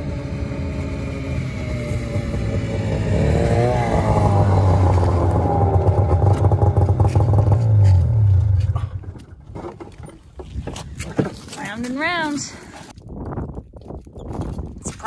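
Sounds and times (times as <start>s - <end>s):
snowmobile engine running: 0.0s - 9.2s.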